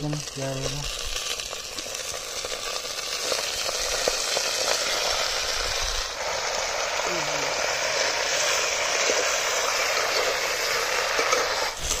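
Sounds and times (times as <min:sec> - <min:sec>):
chicken sizzling in hot oil: 0:00.0 - 0:12.0.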